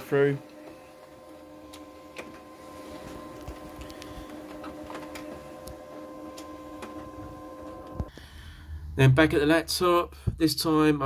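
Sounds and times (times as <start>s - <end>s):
scanner sheet feeder motor humming: 0.0s - 8.2s.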